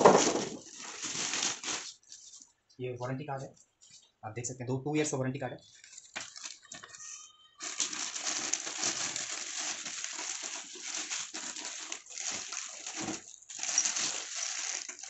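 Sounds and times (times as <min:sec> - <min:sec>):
plastic bag crinkling: 0:00.0 - 0:02.4, 0:05.6 - 0:15.0.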